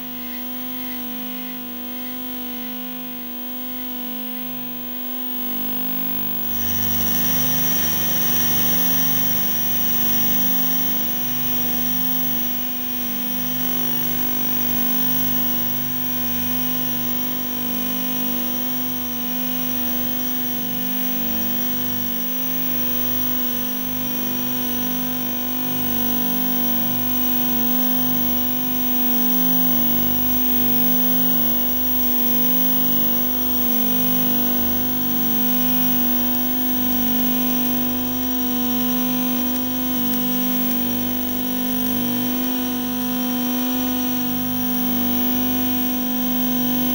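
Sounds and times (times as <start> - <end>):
flickering low buzz: 5.3 - 37.9.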